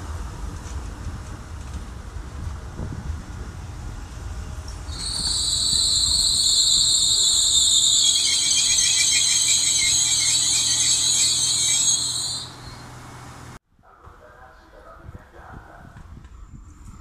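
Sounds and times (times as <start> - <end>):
train brakes squealing: 4.9 - 13.0.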